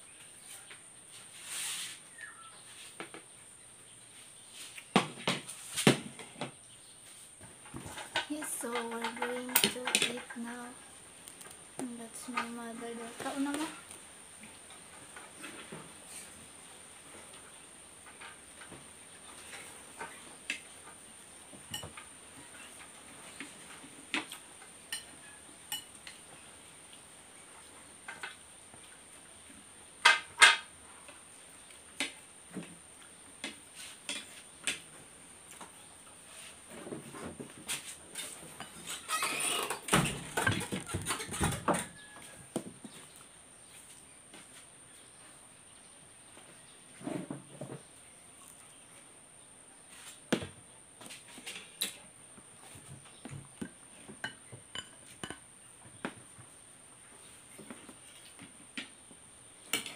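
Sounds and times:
utensils clinking on plates: 7.8s - 10.6s, 21.7s - 22.1s, 24.9s - 26.2s, 54.2s - 55.4s
cutlery clinking on plates: 21.7s - 22.0s, 24.2s - 26.2s, 54.2s - 55.4s.

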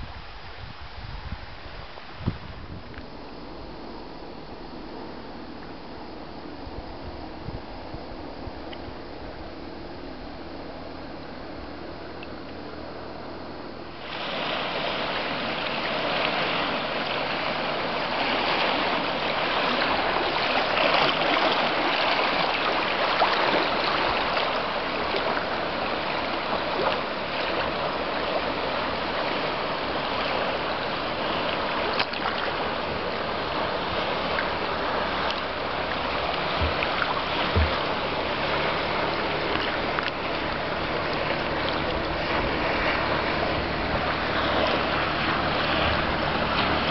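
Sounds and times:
water splashing against kayak hull: 13.8s - 46.9s.

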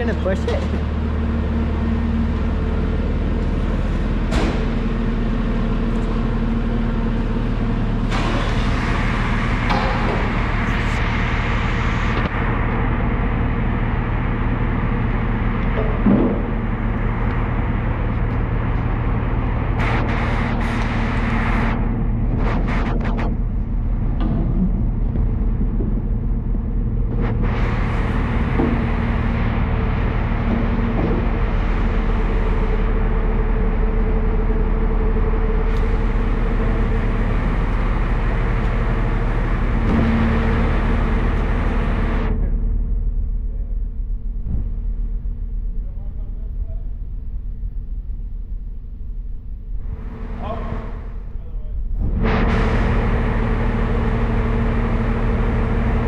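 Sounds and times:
vehicle engine idling: 23.8s - 48.5s.

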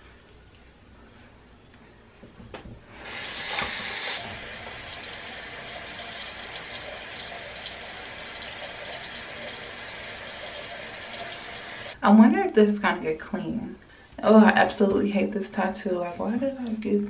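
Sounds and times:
tap running into sink: 3.1s - 5.2s.

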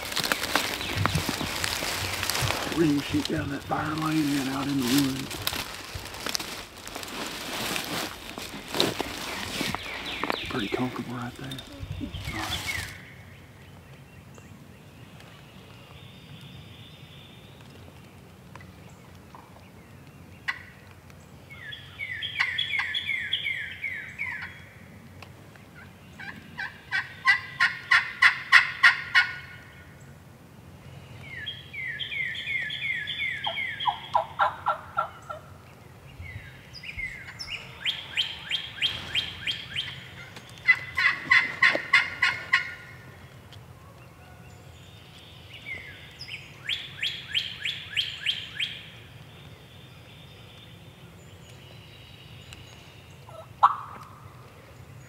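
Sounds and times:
turkey calling: 25.8s - 29.6s, 32.0s - 35.5s, 37.2s - 43.0s, 53.3s - 54.1s.

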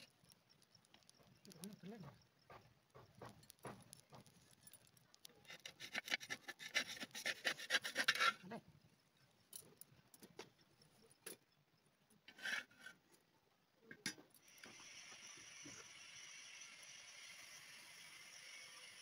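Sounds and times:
spatula scraping a clay pan: 5.4s - 8.6s, 12.3s - 13.0s.

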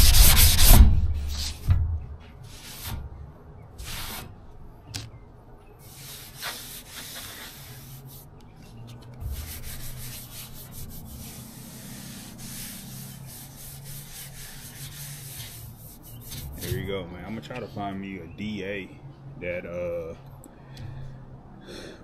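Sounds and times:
sandpaper rubbing on car panel: 0.0s - 1.7s, 2.5s - 3.0s, 3.8s - 4.3s, 5.8s - 16.8s.

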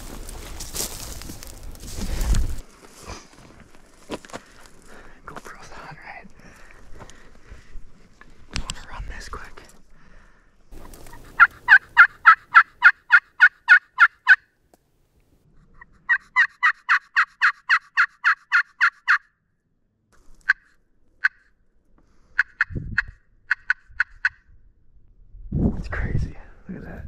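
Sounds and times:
low rustle: 0.0s - 5.6s
turkey call clucks: 10.9s - 14.4s, 15.8s - 19.3s, 20.4s - 21.5s, 22.4s - 24.4s
turkey call yelps: 11.0s - 14.4s, 16.0s - 19.2s, 22.4s - 24.3s.

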